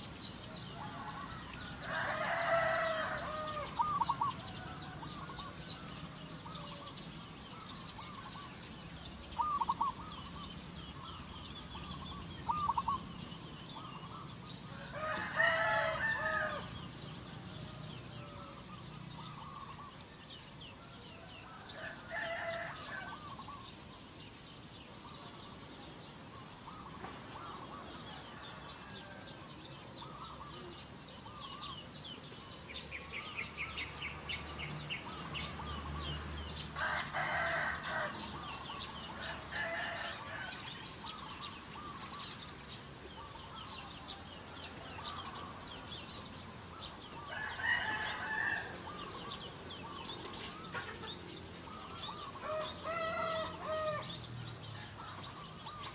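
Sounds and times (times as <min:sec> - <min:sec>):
rooster crowing: 0:00.7 - 0:06.9, 0:14.7 - 0:18.6, 0:21.1 - 0:23.4, 0:36.6 - 0:40.9, 0:47.2 - 0:49.3, 0:52.1 - 0:55.0
chickens clucking: 0:49.0 - 0:53.9.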